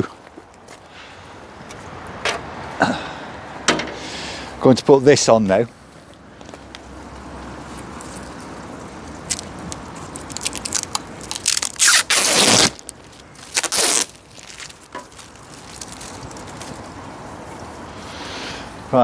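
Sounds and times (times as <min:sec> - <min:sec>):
plastic film peeling rustle: 0:07.7 - 0:17.0
plastic film ripping: 0:09.2 - 0:16.7.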